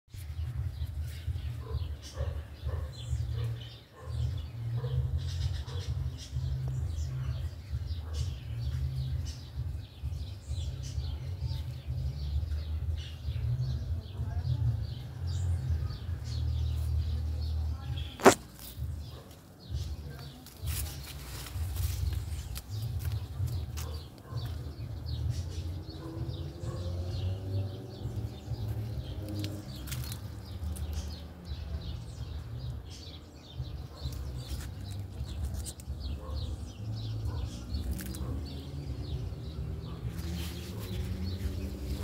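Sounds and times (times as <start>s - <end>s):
leaves and twigs rustling: 18.1s - 24.6s, 28.0s - 31.5s, 33.9s - 36.4s, 37.1s - 42.0s.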